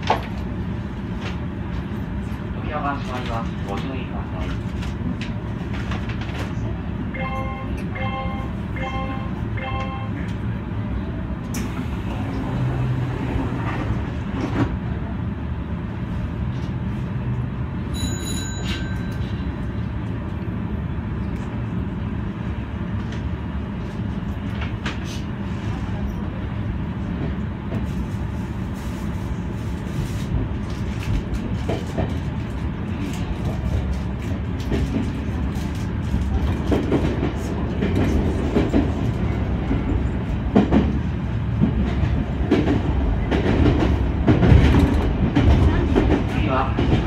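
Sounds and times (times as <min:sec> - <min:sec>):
electric train rumbling on rails: 0:00.0 - 0:47.0
brief ringing tone: 0:17.9 - 0:19.3.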